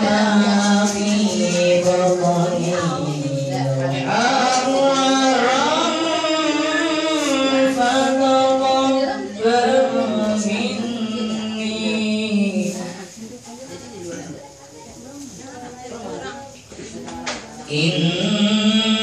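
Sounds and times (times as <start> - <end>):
men chanting devotional song: 0.0 - 13.4, 17.5 - 19.0.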